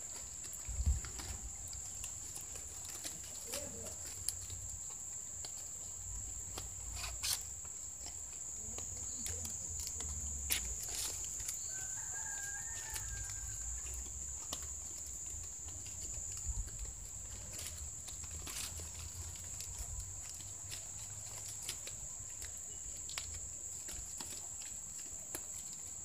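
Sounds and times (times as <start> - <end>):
palm fronds rustling and crackling: 0.0 - 26.0
faint rooster crow: 11.4 - 14.1.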